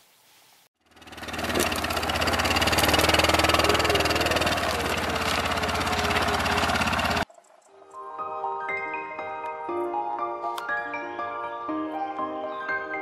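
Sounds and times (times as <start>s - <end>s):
quad bike engine running: 0.8s - 7.3s.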